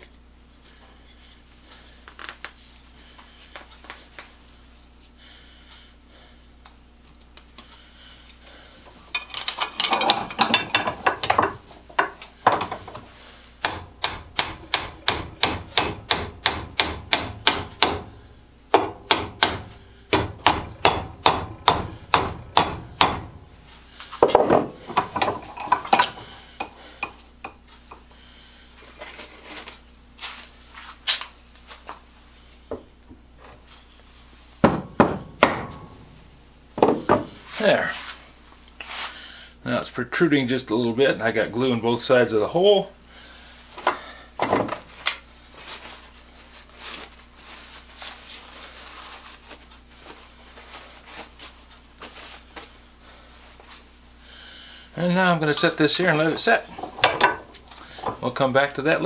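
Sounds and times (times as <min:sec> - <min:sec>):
hammer tapping wooden dowel: 0:18.7 - 0:23.3.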